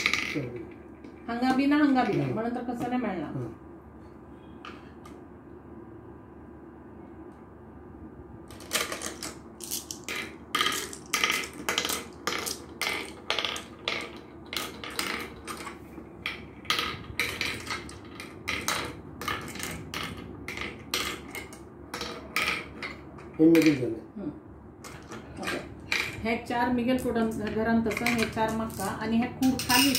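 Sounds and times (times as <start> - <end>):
glass marbles clicking on board: 0.0 - 0.6, 8.7 - 23.8, 27.0 - 29.9.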